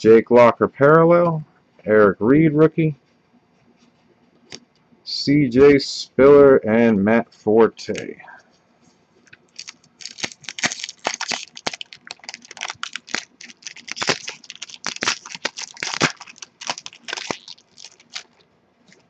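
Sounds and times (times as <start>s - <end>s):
foil wrapper tearing and crinkling: 9.5s - 18.4s.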